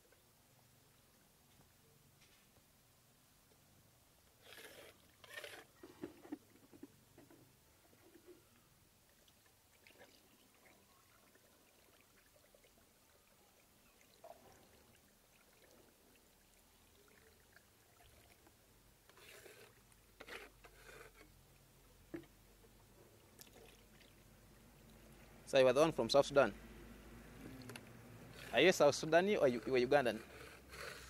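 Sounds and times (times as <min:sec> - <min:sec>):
faint pouring of thick slurry: 0:09.1 - 0:21.3, 0:23.2 - 0:25.5, 0:27.6 - 0:31.0.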